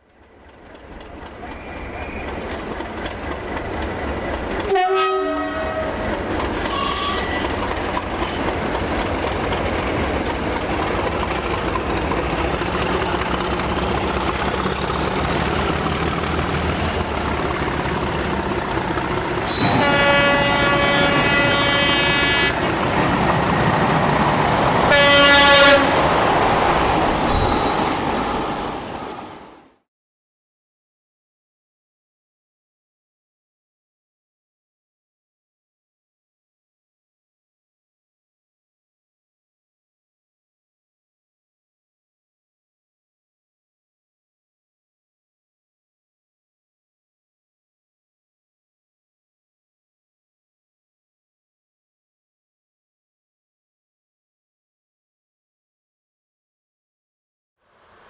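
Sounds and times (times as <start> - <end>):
train rumbling: 0.0 - 29.8
train horn blasts: 4.6 - 7.5, 19.5 - 22.7, 24.8 - 26.2.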